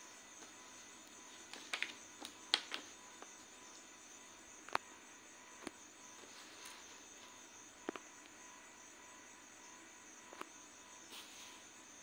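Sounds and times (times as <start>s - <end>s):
faint high-pitched hiss: 0.0s - 12.0s
paper rustling and tapping: 1.5s - 2.9s.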